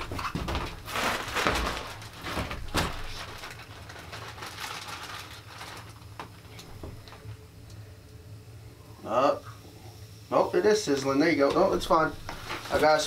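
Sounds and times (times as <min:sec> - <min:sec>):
rustling handling noise: 0:00.0 - 0:07.4, 0:11.5 - 0:13.0
faint hiss: 0:05.1 - 0:13.0.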